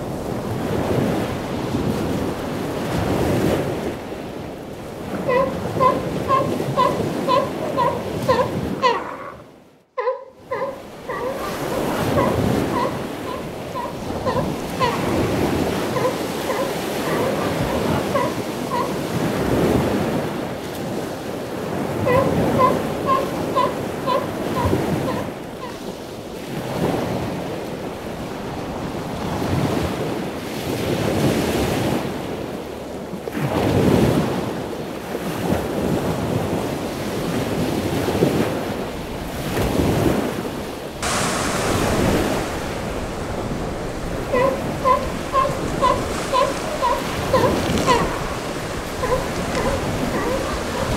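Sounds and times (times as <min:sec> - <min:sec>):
surf breaking on shore: 0:00.0 - 0:09.6, 0:10.6 - 0:50.9
short pitched calls: 0:10.0 - 0:19.0, 0:22.1 - 0:25.8, 0:44.2 - 0:50.9.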